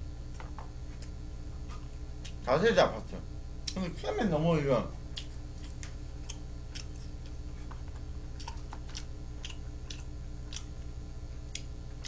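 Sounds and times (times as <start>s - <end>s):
steady low hum: 0.0s - 12.0s
chewing: 5.1s - 12.0s.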